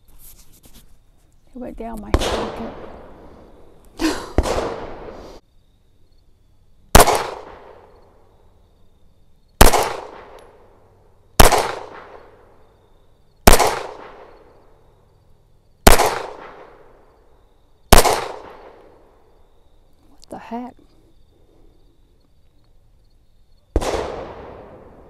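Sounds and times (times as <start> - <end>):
pistol shots with echo: 4.4 - 5.1, 6.9 - 8.0, 9.6 - 10.5, 11.4 - 12.3, 13.4 - 14.4, 15.8 - 16.9, 17.9 - 18.9, 23.7 - 25.0.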